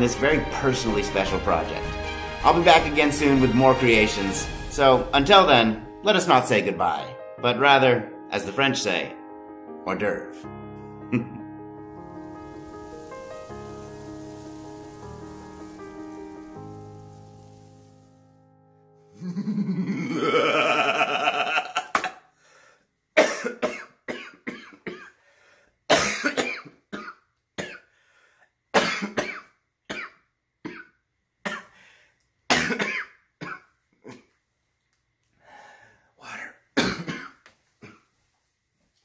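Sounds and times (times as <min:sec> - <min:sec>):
music sting: 0:00.0 - 0:07.1, 0:10.8 - 0:18.7
man coughing harshly: 0:23.2 - 0:25.2, 0:25.9 - 0:27.8, 0:28.8 - 0:30.1, 0:32.5 - 0:33.6, 0:36.8 - 0:38.0.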